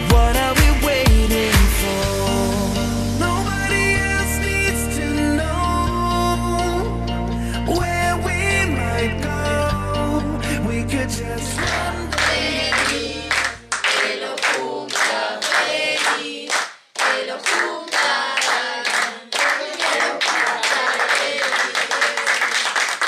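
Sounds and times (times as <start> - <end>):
group of people singing: 0.0 - 2.8, 11.4 - 22.5
backing music with bass line: 0.0 - 13.7
hands clapping in time: 11.6 - 23.0.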